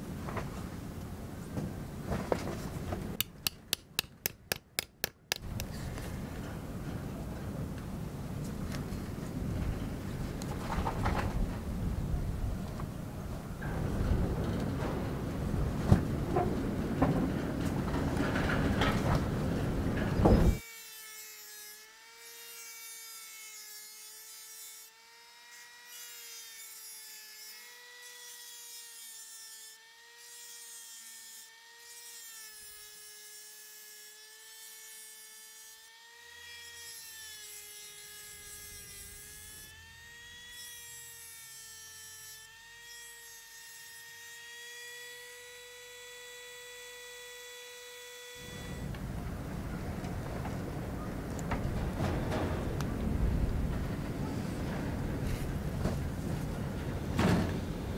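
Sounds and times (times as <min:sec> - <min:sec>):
rotary tool cutting metal: 0:20.2 - 0:48.9.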